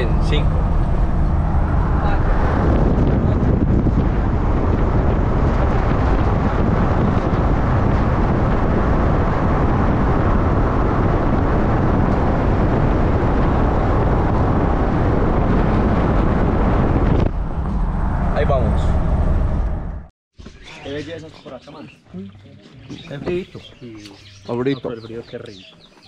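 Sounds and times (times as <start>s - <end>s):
wind rushing: 0.0s - 20.1s
road noise: 0.0s - 26.0s.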